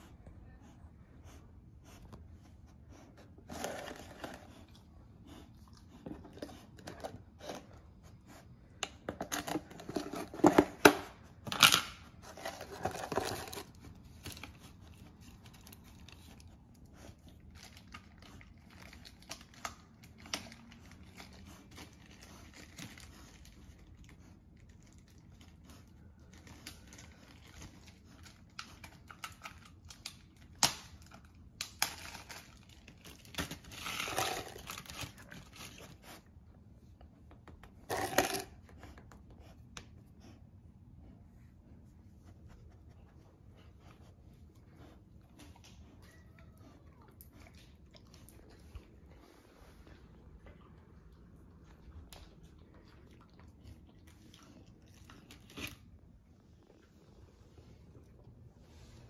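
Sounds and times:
crinkling and rustling: 0:01.9 - 0:40.4.

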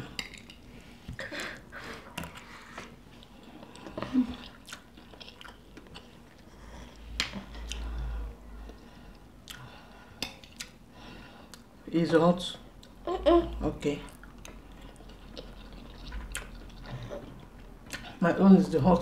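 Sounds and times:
chewing and mouth sounds: 0:00.1 - 0:10.8, 0:12.8 - 0:18.2.

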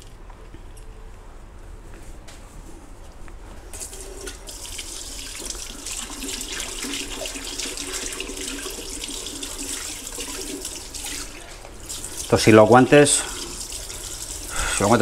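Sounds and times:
tap water running into sink: 0:03.8 - 0:15.0.

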